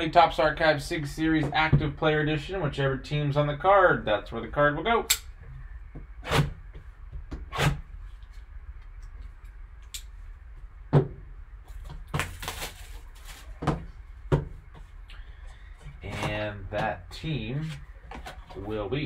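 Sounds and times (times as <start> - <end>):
wrapping tearing: 12.2 - 13.6.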